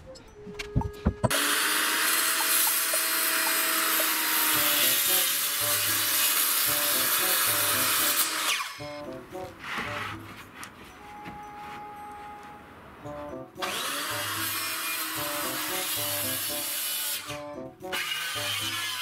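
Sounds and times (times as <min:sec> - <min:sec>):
light background music: 0:00.0 - 0:19.0
power tool on wood: 0:01.3 - 0:08.8, 0:13.6 - 0:19.0.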